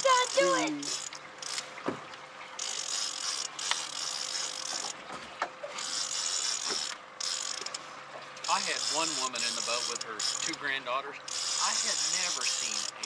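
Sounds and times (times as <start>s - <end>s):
fishing reel gears whirring: 0.0s - 1.8s, 2.5s - 13.0s
fishing reel clicks: 0.2s - 1.7s, 2.6s - 5.0s, 5.8s - 7.8s, 8.4s - 10.6s, 11.3s - 13.0s.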